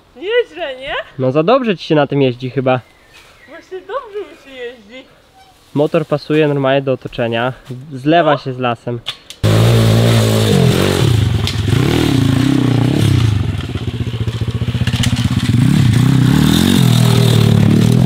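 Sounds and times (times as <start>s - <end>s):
motorbike engine revving: 9.4s - 18.0s.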